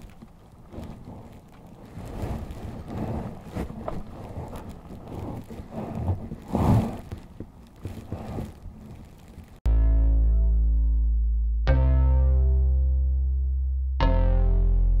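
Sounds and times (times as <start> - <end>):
wind on microphone: 0.0 - 9.6
music: 9.7 - 15.0.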